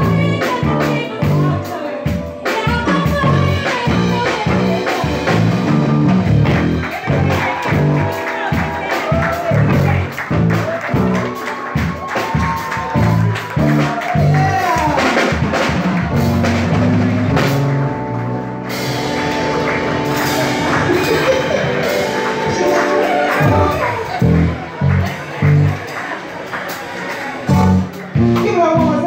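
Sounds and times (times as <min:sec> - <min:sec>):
woman singing: 0:00.0 - 0:05.4
live band playing: 0:00.0 - 0:29.0.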